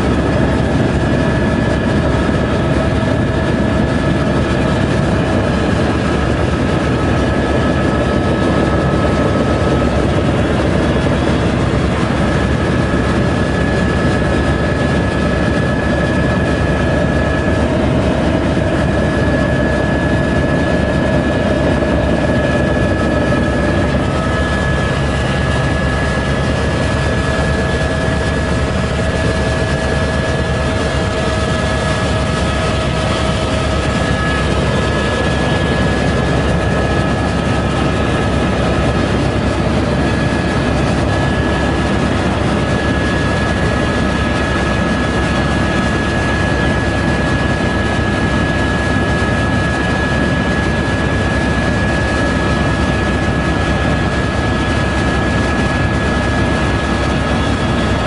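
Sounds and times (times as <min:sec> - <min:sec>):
helicopter engine and rotor drone: 0:00.0 - 0:58.0
steady whining tones: 0:00.1 - 0:45.8.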